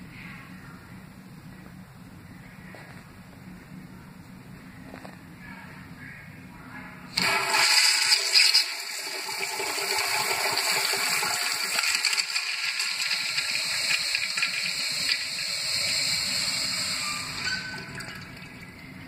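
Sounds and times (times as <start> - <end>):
urinal flushing: 7.2 - 19.0.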